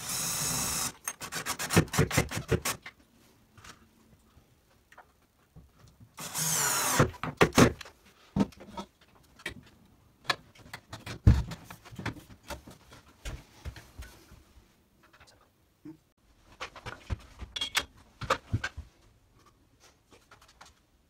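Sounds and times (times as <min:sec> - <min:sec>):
cordless screwdriver running: 0:06.2 - 0:07.0.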